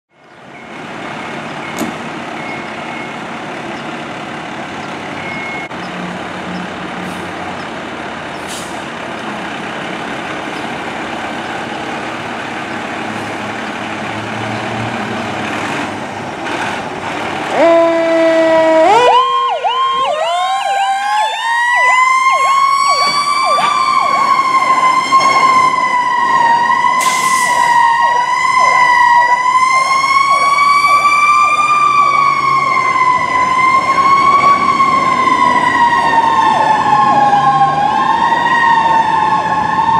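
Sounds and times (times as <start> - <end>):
fire truck engine running: 0.2 - 39.9
truck horn blast: 17.5 - 19.1
wavering siren: 17.5 - 39.9.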